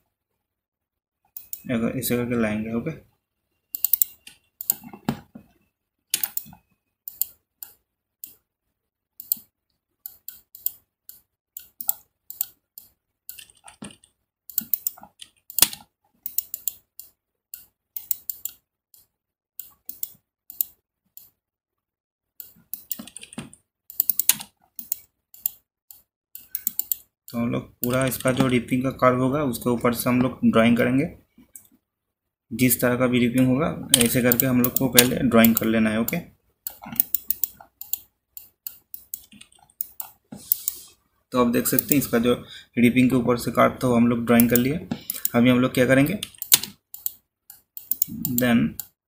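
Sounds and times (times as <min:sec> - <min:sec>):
computer mouse and keyboard clicks: 0:01.3 - 0:01.6, 0:03.8 - 0:08.4, 0:09.2 - 0:21.4, 0:22.4 - 0:27.1, 0:27.8 - 0:28.6, 0:33.9 - 0:40.9, 0:41.6 - 0:42.1, 0:44.4 - 0:45.4, 0:46.0 - 0:49.0.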